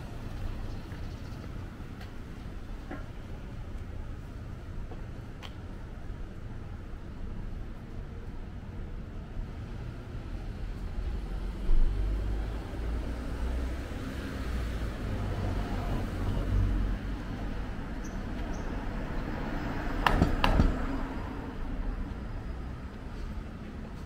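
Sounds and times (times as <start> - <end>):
passing cars rumble: 9.5 - 24.0.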